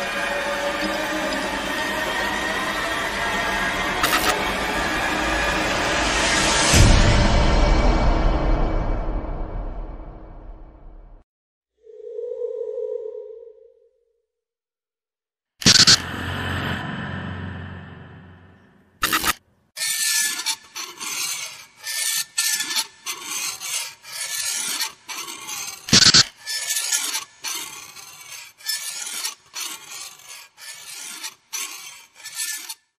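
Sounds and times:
rasping scraping strokes: 0:00.0 - 0:07.6, 0:15.6 - 0:33.0.

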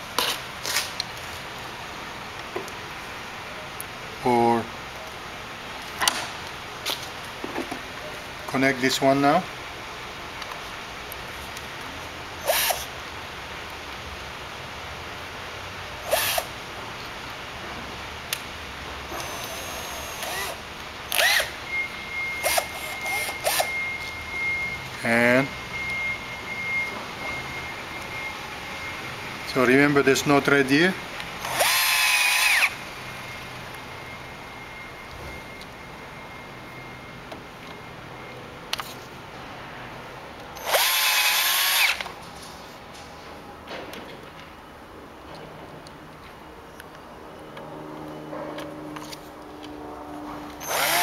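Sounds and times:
cordless drill motor blips: 0:12.4 - 0:12.9, 0:16.0 - 0:16.6, 0:19.1 - 0:24.8, 0:31.4 - 0:33.4, 0:40.6 - 0:42.1, 0:50.6 - 0:51.0
faint steady high tone: 0:21.4 - 0:31.6, 0:32.3 - 0:40.1.

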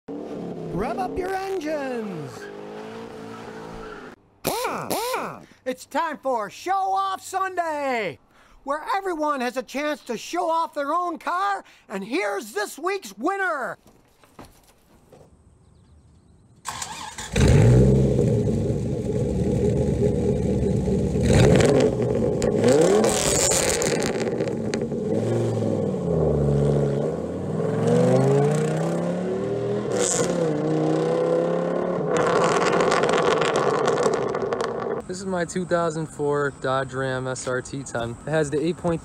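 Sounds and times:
truck engine starting and revving: 0:16.6 - 0:35.4
truck accelerating away: 0:16.7 - 0:35.1.

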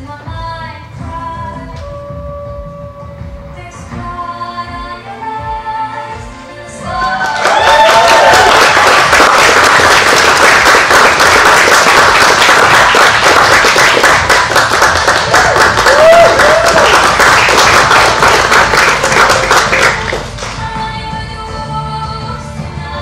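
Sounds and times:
background music: 0:00.0 - 0:23.0
audience clapping: 0:06.9 - 0:20.7
short whoops: 0:15.8 - 0:16.9.

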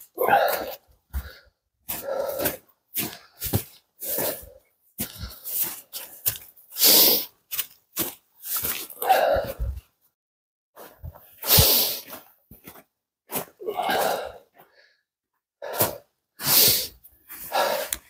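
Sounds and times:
footsteps crunching in snow: 0:05.0 - 0:09.0.

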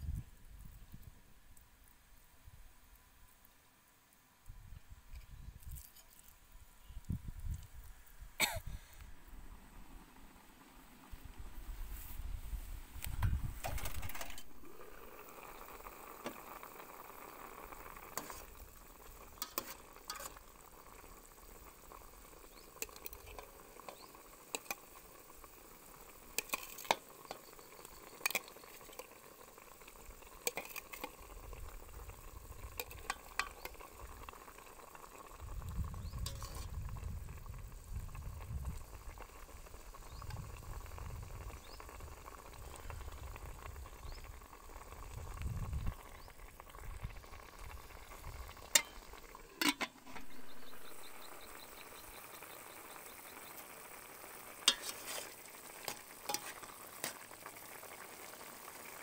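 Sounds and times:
soup boiling and bubbling: 0:00.1 - 0:59.0
metal ladle clinking on pot: 0:19.4 - 0:20.4, 0:48.7 - 0:49.0, 0:49.6 - 0:50.0, 0:54.7 - 0:55.1, 0:56.3 - 0:56.6.

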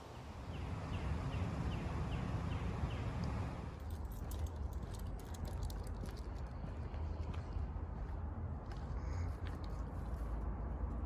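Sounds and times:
metallic clicking and jingling: 0:03.8 - 0:06.3.

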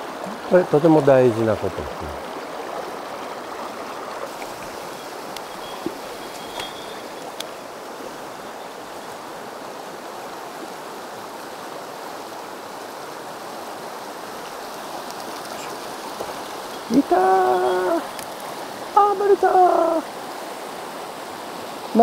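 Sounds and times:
mountain stream flowing: 0:00.0 - 0:22.0
faint clicks: 0:15.0 - 0:17.0.

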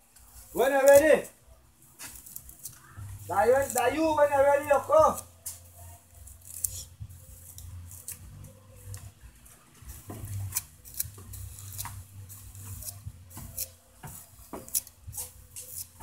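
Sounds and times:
comb scratching through hair: 0:02.0 - 0:05.3, 0:10.2 - 0:16.0.

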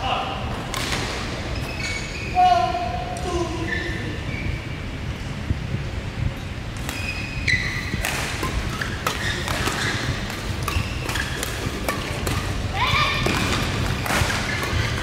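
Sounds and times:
low hall rumble: 0:00.0 - 0:15.0
shoes squeaking on court: 0:00.8 - 0:02.4, 0:03.6 - 0:04.8, 0:06.8 - 0:15.0
rackets hitting shuttlecock: 0:07.9 - 0:15.0.

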